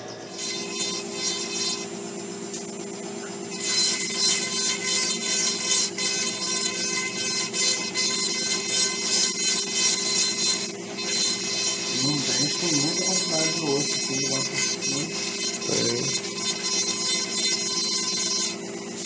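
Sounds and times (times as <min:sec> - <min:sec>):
dental handpiece whine: 0:00.0 - 0:19.0
bur grinding tooth: 0:03.6 - 0:18.6.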